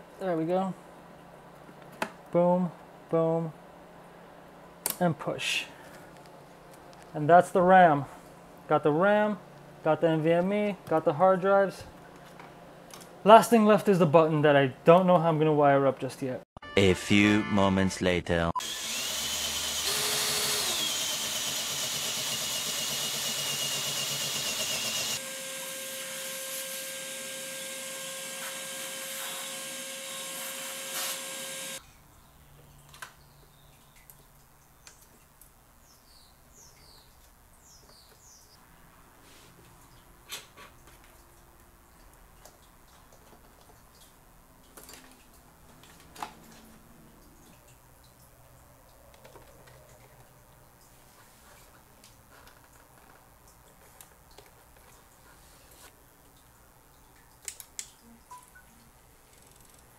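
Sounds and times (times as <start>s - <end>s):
electric drill whine: 18.6s - 31.8s.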